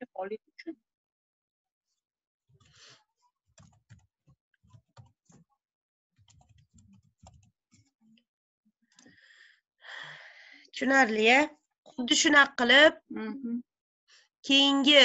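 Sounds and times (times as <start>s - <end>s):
faint keyboard typing: 3.6s - 4.0s, 4.6s - 5.4s, 6.2s - 7.9s.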